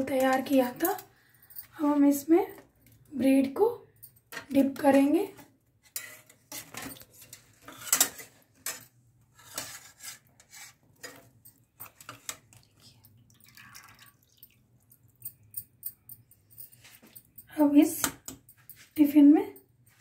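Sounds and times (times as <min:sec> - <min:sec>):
syrup dripping: 0:13.2 - 0:15.6.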